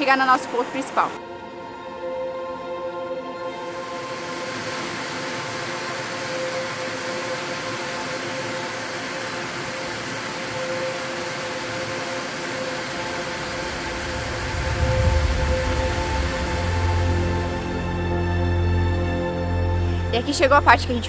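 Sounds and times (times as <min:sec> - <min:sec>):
background music with held tones: 0:00.0 - 0:21.0
river rushing over rocks: 0:03.6 - 0:17.9.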